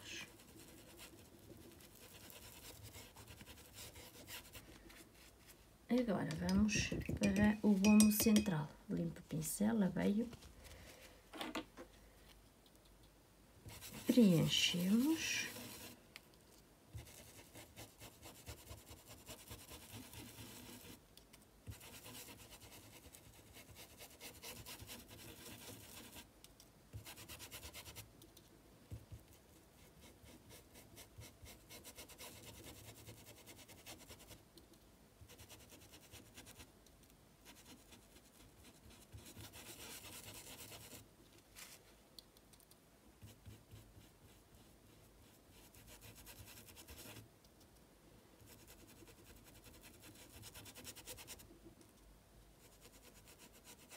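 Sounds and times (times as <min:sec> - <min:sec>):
paintbrush scrubbing fabric: 0:00.0 - 0:05.6, 0:13.7 - 0:16.0, 0:16.9 - 0:21.0, 0:21.7 - 0:26.3, 0:27.0 - 0:28.1, 0:29.7 - 0:34.4, 0:37.5 - 0:41.0, 0:43.2 - 0:47.2, 0:52.6 - 0:53.9.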